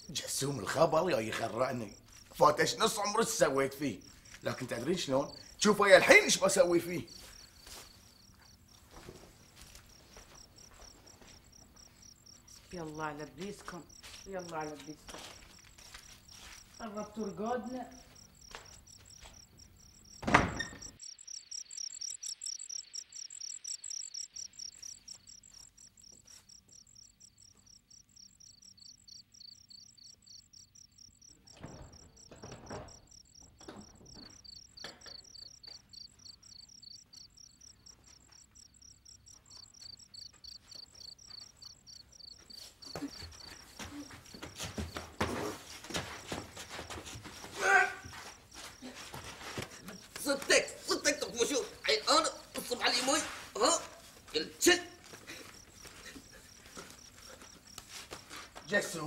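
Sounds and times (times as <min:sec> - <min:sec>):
crickets chirping: 0:00.0 - 0:59.0
people scuffling and knocking: 0:08.8 - 0:11.8, 0:31.5 - 0:35.2, 0:42.4 - 0:51.0, 0:55.0 - 0:59.0
wooden door banging shut: 0:20.2 - 0:21.0, 0:31.5 - 0:34.3.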